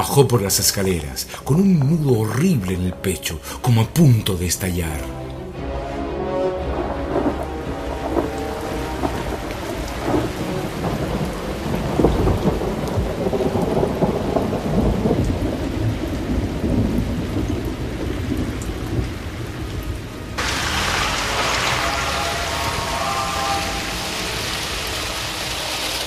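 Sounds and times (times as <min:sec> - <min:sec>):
rain: 0:00.0 - 0:26.0
heavy rain hissing: 0:05.6 - 0:26.0
thunder rumbling: 0:06.6 - 0:26.0.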